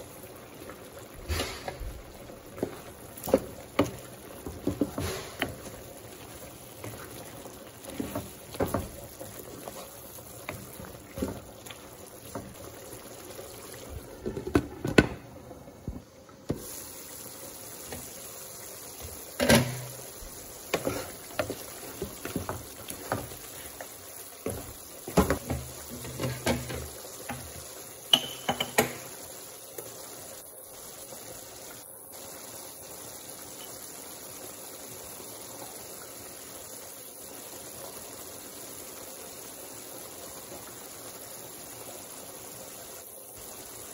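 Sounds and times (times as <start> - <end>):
curry bubbling in a pan: 0.0 - 43.9
spatula knocking and scraping: 7.8 - 11.5, 20.7 - 23.5, 24.4 - 27.5.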